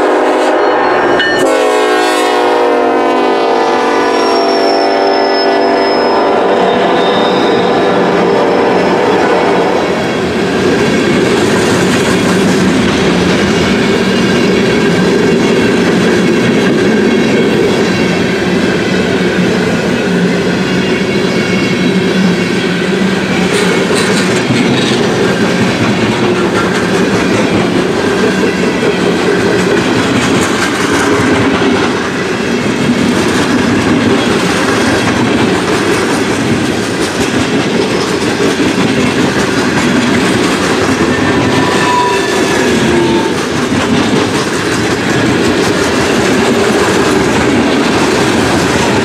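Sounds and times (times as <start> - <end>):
freight train rumble and rattle: 0.0 - 49.0
train wheel squeal: 4.0 - 32.8, 37.2 - 49.0
wheels clicking over rail joints: 23.4 - 32.0, 43.3 - 49.0.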